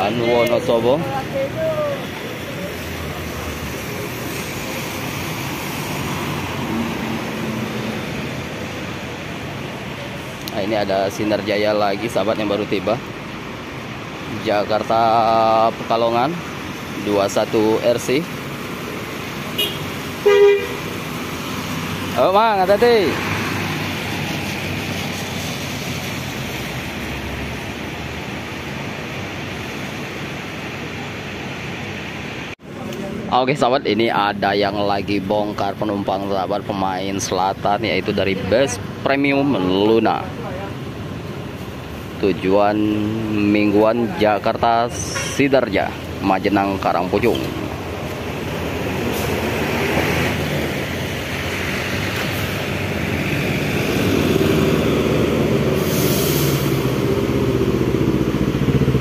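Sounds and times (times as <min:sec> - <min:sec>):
heavy rain: 0:00.0 - 0:35.2, 0:36.2 - 0:59.0
bus engine drone: 0:47.0 - 0:59.0.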